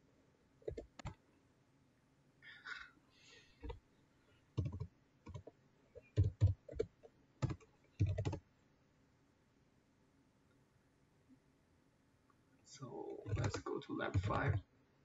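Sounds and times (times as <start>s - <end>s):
keyboard typing clicks: 0.6s - 1.2s, 4.6s - 8.4s, 13.2s - 14.6s.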